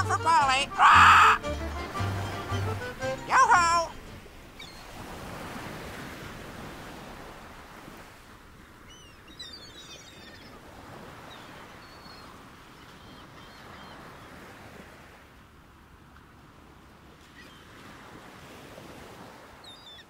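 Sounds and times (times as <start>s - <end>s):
ocean waves washing in: 0.0s - 9.7s, 16.6s - 19.7s.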